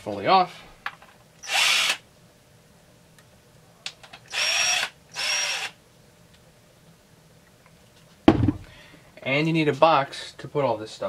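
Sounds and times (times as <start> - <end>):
cordless drill spinning: 1.4 - 2.0, 4.2 - 5.8.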